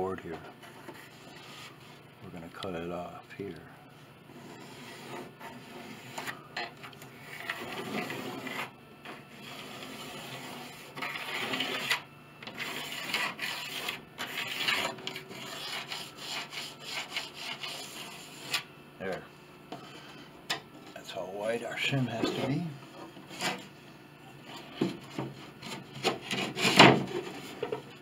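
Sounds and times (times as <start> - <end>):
scraping on piano soundboard wood: 0.0 - 2.0, 4.3 - 6.5, 7.1 - 18.7, 21.9 - 23.8, 24.4 - 28.0.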